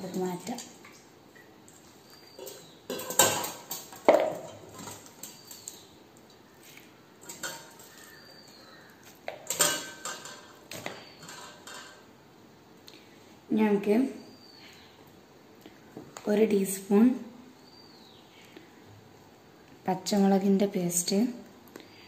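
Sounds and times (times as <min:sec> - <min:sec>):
metal colander and pot clattering: 0:02.3 - 0:05.9, 0:07.2 - 0:08.5, 0:09.3 - 0:12.1.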